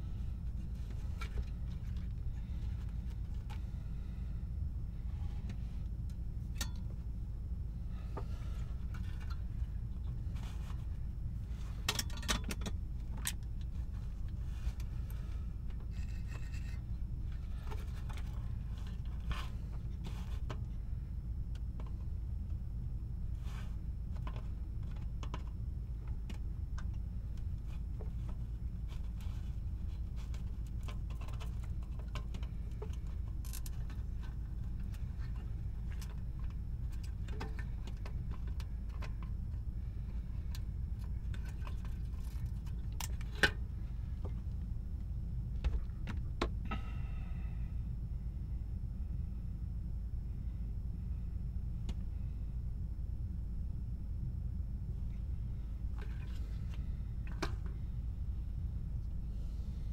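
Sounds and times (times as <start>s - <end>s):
steady low hum: 0.0s - 59.9s
small parts clicking and scraping: 11.6s - 20.6s, 27.7s - 43.6s.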